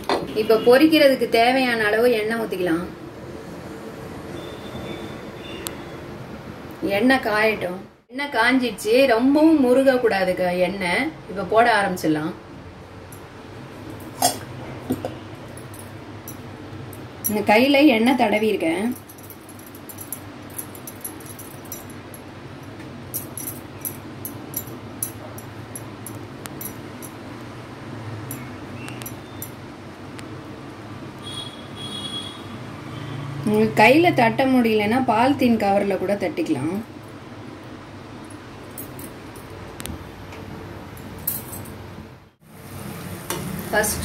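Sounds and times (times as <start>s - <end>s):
light clinks: 18.9s - 22.3s.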